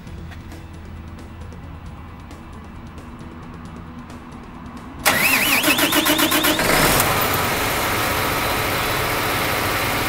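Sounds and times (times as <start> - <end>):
diesel tractor engine cranking and starting: 5.0 - 10.0.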